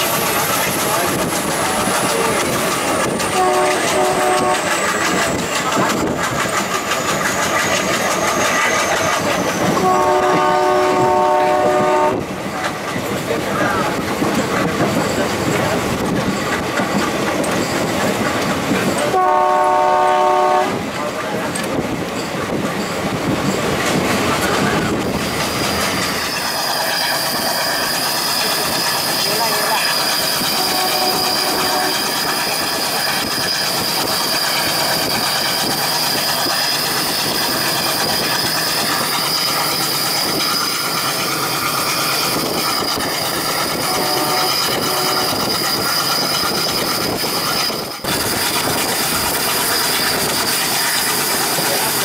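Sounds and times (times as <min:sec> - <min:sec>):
train wheels clattering: 0:00.0 - 0:52.0
locomotive horn blast: 0:03.3 - 0:04.7, 0:09.8 - 0:12.2, 0:19.1 - 0:20.8, 0:30.5 - 0:32.1, 0:43.8 - 0:45.4.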